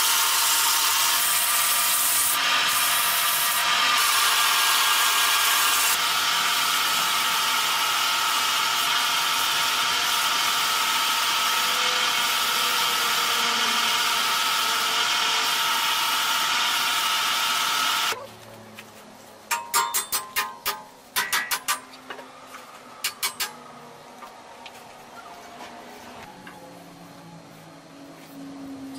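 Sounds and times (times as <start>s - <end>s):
tool hissing on turning wood: 0.0s - 18.2s
wood lathe whine: 0.0s - 18.2s.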